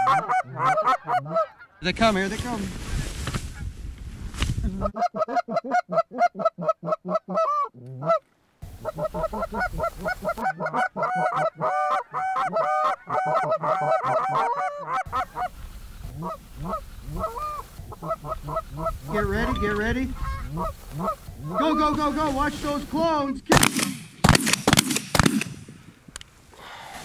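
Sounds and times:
geese honking: 0.0 - 1.9, 4.8 - 22.3.

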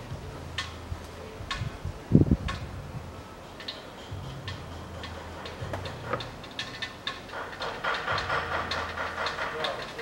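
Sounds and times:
hand ratchet clicking: 4.4 - 10.0.

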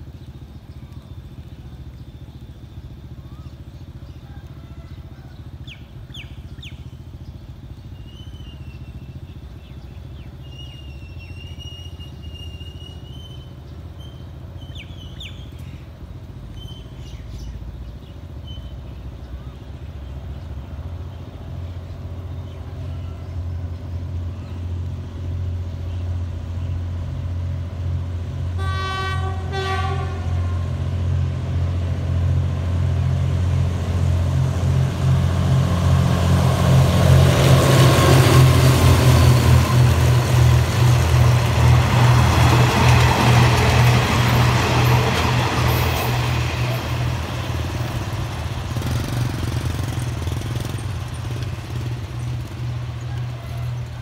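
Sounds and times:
locomotive engine drone: 0.0 - 54.0
train coaches rolling on rails: 0.0 - 54.0
train horn blast: 28.5 - 31.0.

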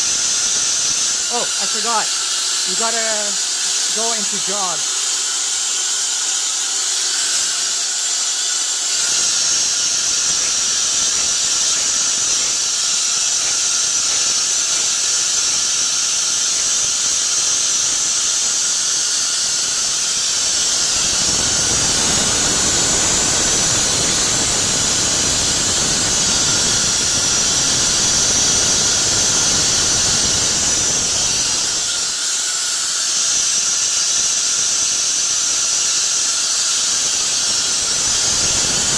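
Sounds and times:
high-pitched compressed air hiss: 0.0 - 5.5, 6.4 - 38.9.

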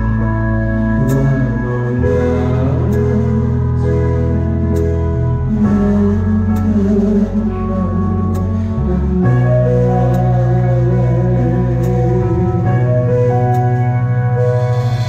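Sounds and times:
bass line: 0.0 - 15.0
live band playing rock ballad: 0.0 - 15.0.

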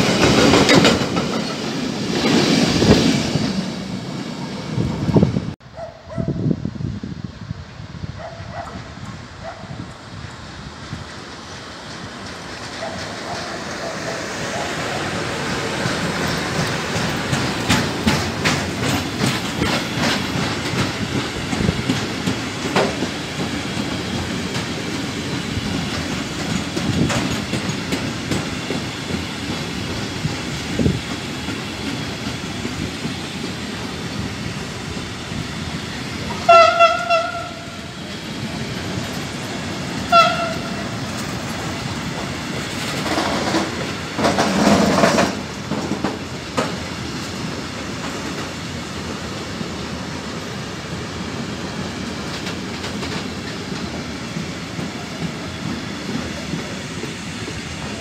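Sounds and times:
train wheels rumbling on rails: 0.0 - 58.0
loud high horn tone: 36.4 - 37.8, 40.1 - 40.8.

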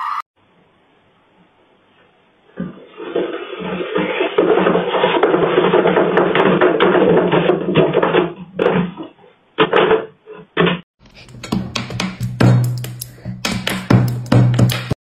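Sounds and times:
sharp taps and knocks: 10.6 - 15.0.

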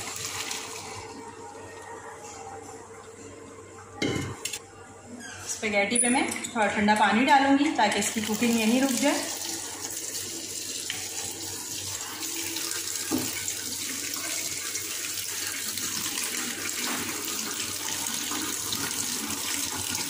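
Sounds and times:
tap water splashing into colander: 13.0 - 13.5.

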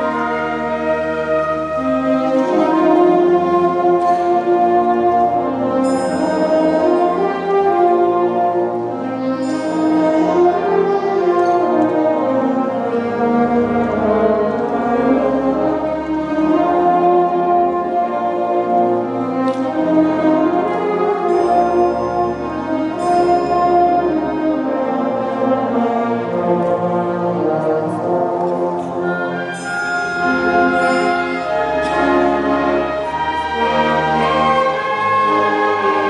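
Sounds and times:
orchestra playing held chords: 0.0 - 36.0.

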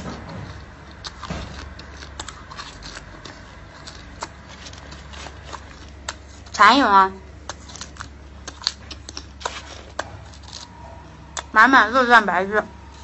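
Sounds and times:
wet chewing clicks and smacks: 0.5 - 6.6, 7.4 - 10.7.

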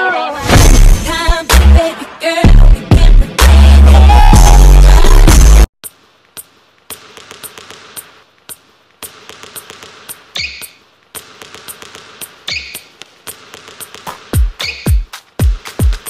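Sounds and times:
shoe squeak: 10.3 - 10.8, 12.4 - 12.9, 14.6 - 15.1.

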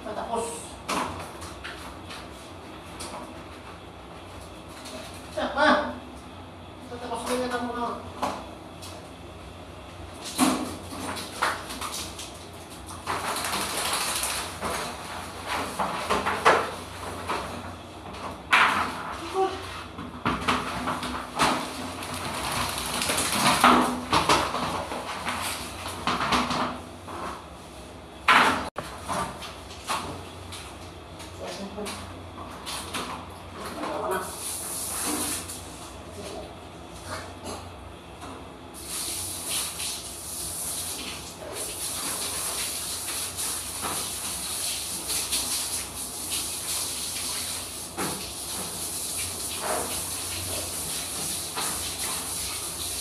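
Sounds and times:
hands scrubbing wet fur: 38.8 - 53.0
shower head spraying water: 38.8 - 53.0.

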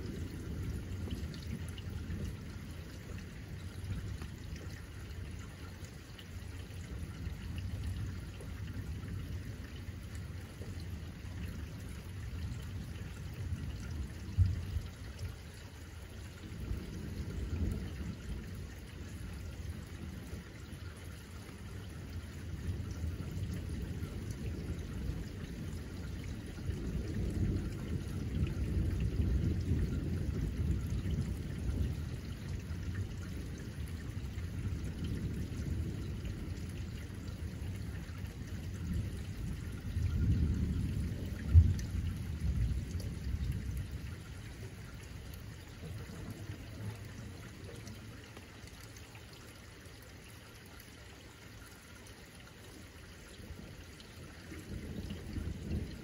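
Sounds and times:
low thunder rumbling: 0.0 - 5.5, 6.5 - 15.4, 21.7 - 48.1, 54.4 - 56.0
rain falling: 0.0 - 56.0.

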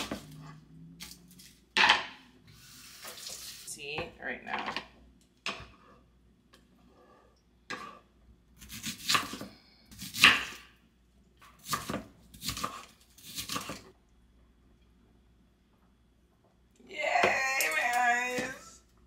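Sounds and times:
knife cutting through onion: 8.6 - 10.6, 11.6 - 13.9.

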